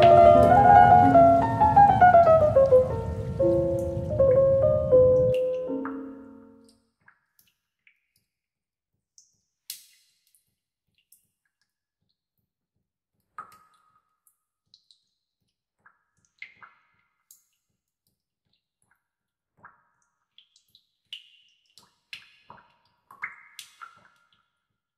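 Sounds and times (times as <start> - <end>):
water dripping in a bathtub: 5.1 - 24.9.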